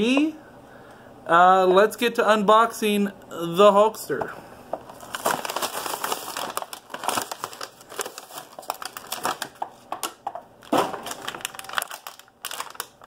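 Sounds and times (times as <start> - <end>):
plastic and cardboard crinkling: 4.7 - 13.0.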